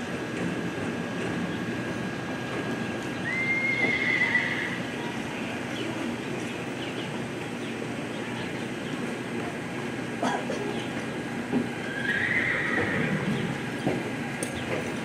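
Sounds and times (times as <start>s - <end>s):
horse whinnying: 3.3s - 4.8s, 11.8s - 13.4s.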